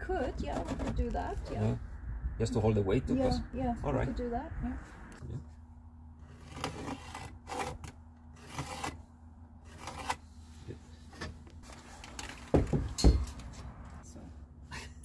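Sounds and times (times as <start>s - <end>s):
rustles and clicks of hardware: 11.0s - 14.0s.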